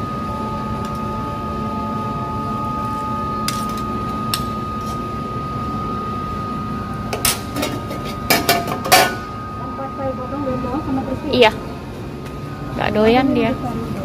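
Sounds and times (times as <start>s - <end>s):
restaurant hum: 0.0s - 14.0s.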